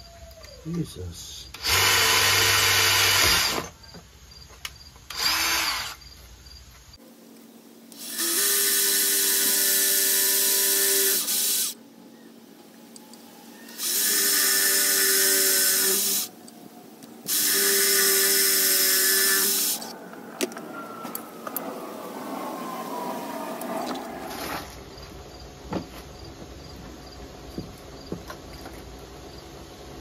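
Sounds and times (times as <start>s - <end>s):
cordless drill boring steel: 1.5s - 3.7s, 5.1s - 6.0s, 7.9s - 11.8s, 13.6s - 16.4s, 17.2s - 19.9s.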